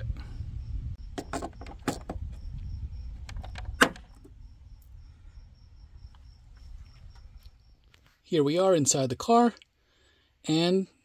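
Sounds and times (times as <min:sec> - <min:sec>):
low rumble: 0:00.0 - 0:01.2, 0:02.2 - 0:03.5.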